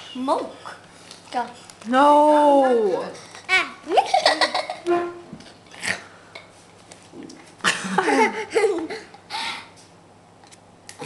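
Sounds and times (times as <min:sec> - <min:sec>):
laughter: 0:04.1 - 0:04.9, 0:07.6 - 0:09.1.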